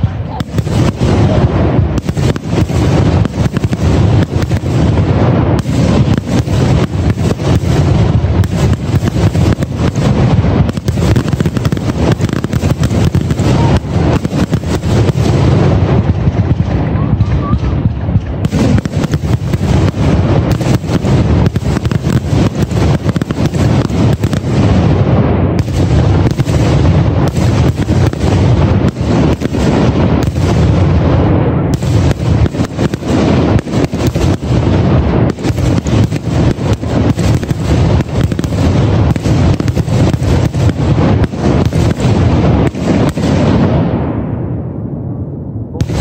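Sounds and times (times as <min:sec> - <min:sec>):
fireworks booming: 0:00.0 - 0:46.0.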